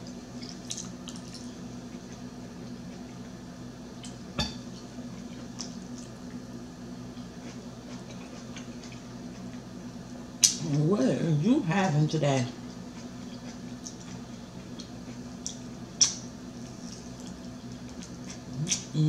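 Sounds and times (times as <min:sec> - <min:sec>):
chewing and wet mouth sounds: 0:00.0 - 0:03.3, 0:04.0 - 0:06.4, 0:07.1 - 0:09.7, 0:12.6 - 0:19.0
steady hum: 0:00.0 - 0:19.0.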